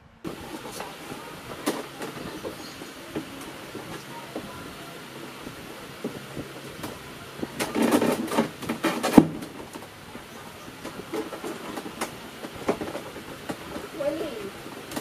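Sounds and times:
plastic panels rattling and clattering: 5.9s - 15.0s.

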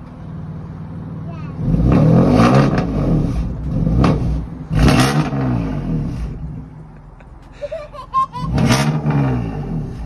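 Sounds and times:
car engine revving: 1.6s - 6.7s, 8.5s - 10.0s.

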